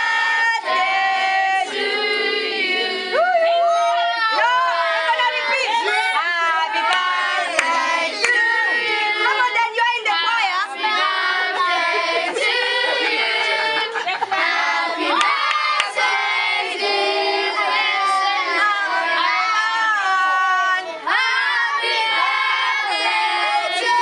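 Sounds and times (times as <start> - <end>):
crowd singing and shouting: 0.0 - 24.0
hand claps: 6.9 - 8.4, 15.2 - 16.0.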